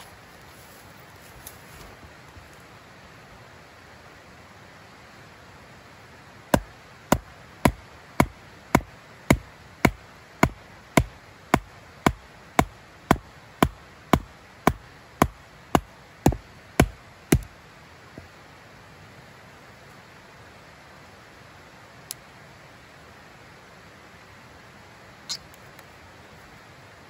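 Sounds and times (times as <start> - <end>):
rhythmic chopping blows: 6.6 - 17.5.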